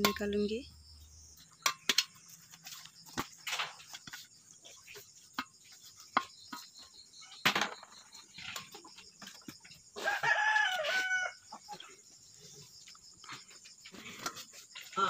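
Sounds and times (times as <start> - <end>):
rooster crowing: 10.0 - 11.6.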